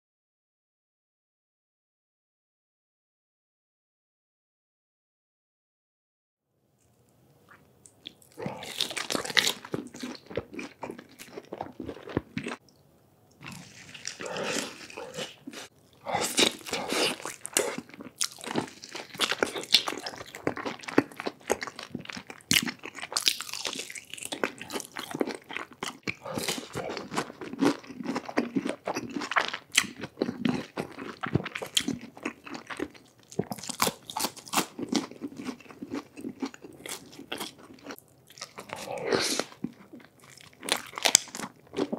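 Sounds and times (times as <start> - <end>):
person chewing crunchy food: 7.5 - 12.7, 13.3 - 41.9
wet mouth sounds: 11.7 - 18.4.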